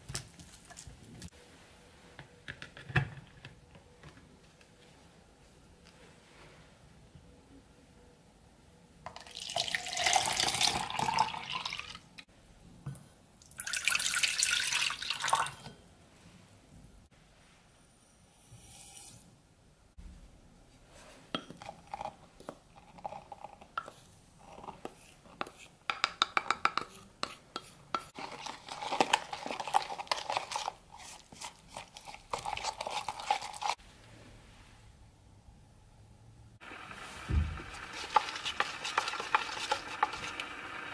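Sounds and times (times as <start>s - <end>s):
orange juice pouring: 9.2s - 12.0s, 13.4s - 15.6s
spatula stirring in plastic jug: 21.4s - 33.8s, 37.4s - 40.9s.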